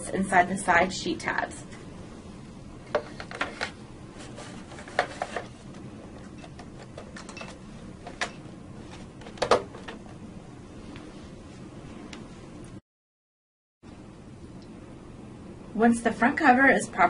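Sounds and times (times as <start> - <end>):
steady low hum: 0.0 - 12.8, 13.8 - 17.0
plastic cover knocks and clicks: 9.2 - 10.0.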